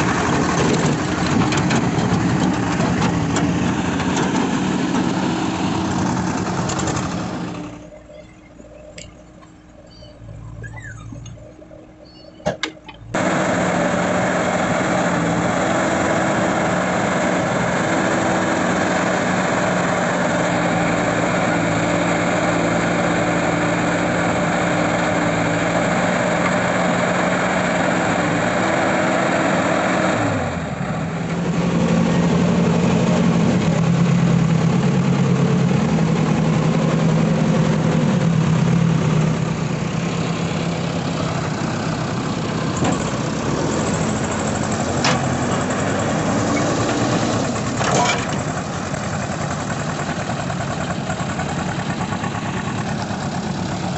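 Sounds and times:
diesel engines running: 0.0 - 53.9.

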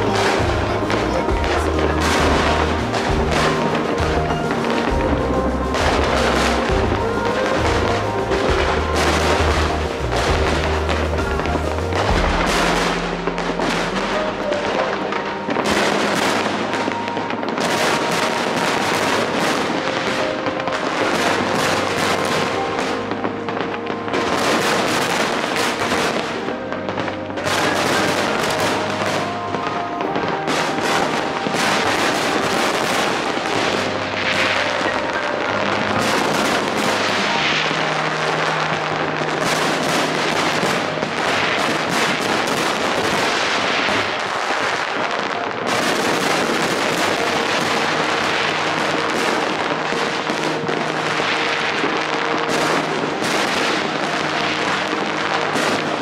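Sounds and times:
fireworks bursting and crackling: 0.0 - 56.0
music with long held notes: 0.0 - 56.0.

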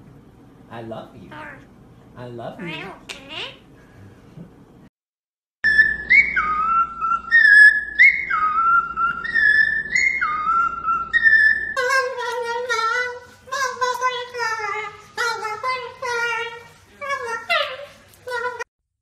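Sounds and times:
wavering voice-like call: 5.7 - 18.7.

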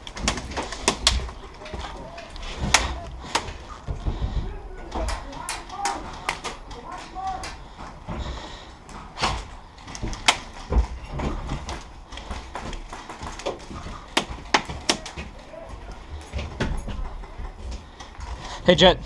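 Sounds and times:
sharp clicks and knocks: 0.0 - 4.2, 8.9 - 18.5.

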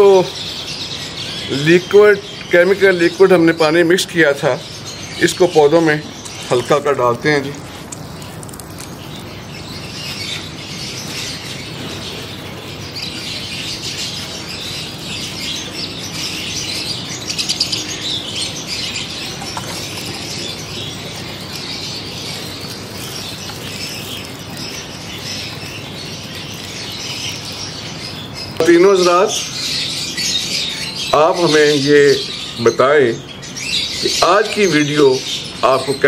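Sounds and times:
watering can spraying on plants: 6.6 - 15.6, 19.1 - 28.3.

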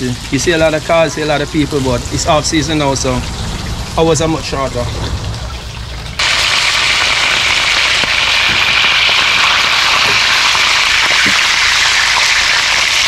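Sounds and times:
fish sizzling in hot oil: 6.1 - 13.0.

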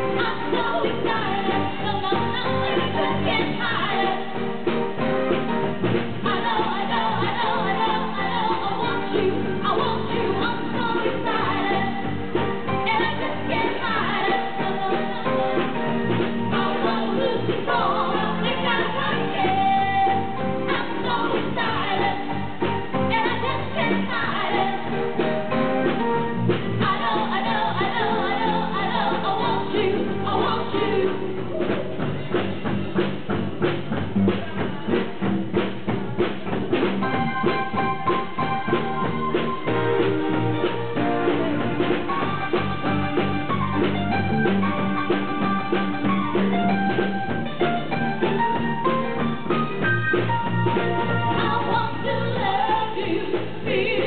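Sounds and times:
vocalists singing: 0.0 - 4.8, 6.1 - 32.5, 50.7 - 54.0
live band playing: 0.0 - 54.0
steady drum beat: 0.0 - 54.0.

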